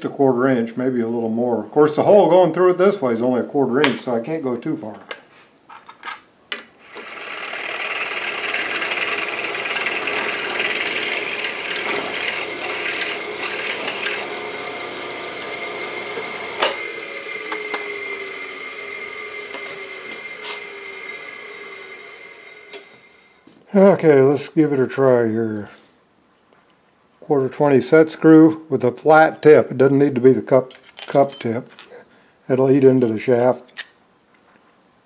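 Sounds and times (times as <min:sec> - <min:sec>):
drill press drilling metal: 0:06.8 - 0:23.3.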